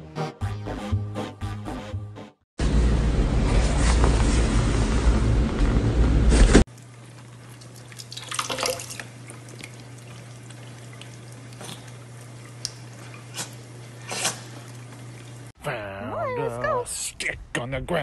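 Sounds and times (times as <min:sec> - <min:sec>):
cat lapping water: 0:06.7 - 0:15.5
water running into metal sink: 0:06.9 - 0:15.5.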